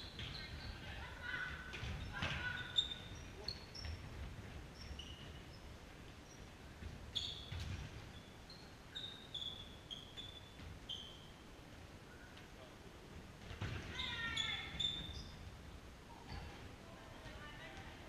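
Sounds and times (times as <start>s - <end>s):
shoes squeaking on court floor: 0.0s - 0.9s, 1.6s - 11.4s, 13.4s - 15.5s, 16.2s - 16.7s.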